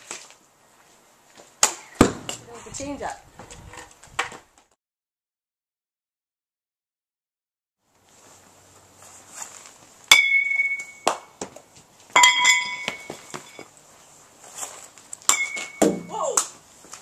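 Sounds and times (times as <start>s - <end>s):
metal bat ringing ping: 10.1s - 11.1s, 12.2s - 13.6s, 15.3s - 16.1s.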